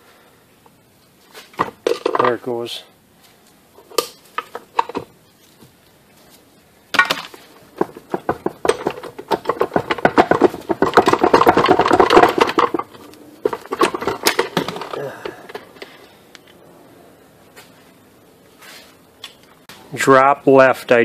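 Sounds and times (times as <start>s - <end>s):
gearbox metallic clicking and rattling: 7.6s - 16.0s.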